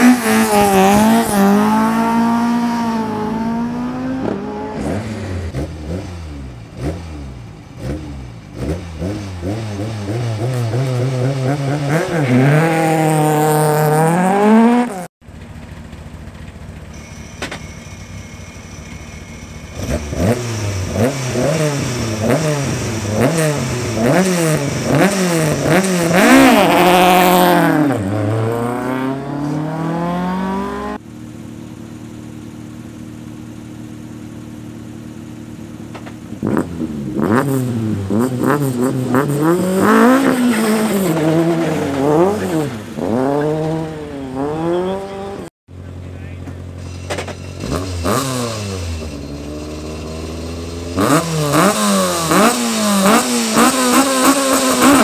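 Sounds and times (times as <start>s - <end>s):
rally car engine revving: 0.0s - 15.1s, 17.0s - 55.0s
car engine idling: 15.2s - 29.1s, 30.4s - 40.1s, 42.2s - 53.8s.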